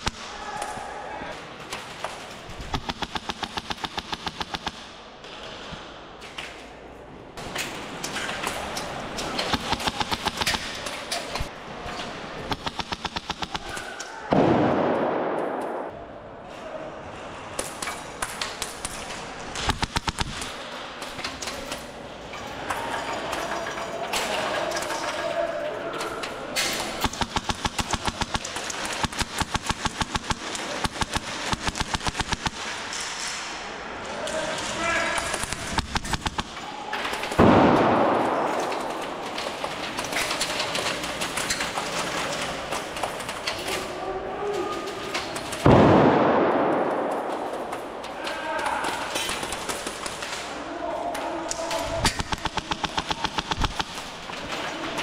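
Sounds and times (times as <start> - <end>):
airsoft guns firing bursts: 2.5 - 5.0, 9.4 - 11.5, 12.4 - 13.9, 18.3 - 20.7, 26.7 - 33.0, 35.1 - 43.6, 48.8 - 50.4, 51.9 - 54.6
loud bang: 14.2 - 16.0, 37.3 - 39.3.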